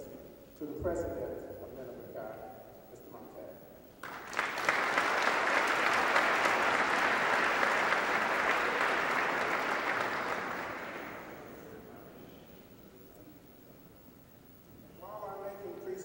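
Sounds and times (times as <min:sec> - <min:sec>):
audience applauding: 0:04.0 - 0:11.8.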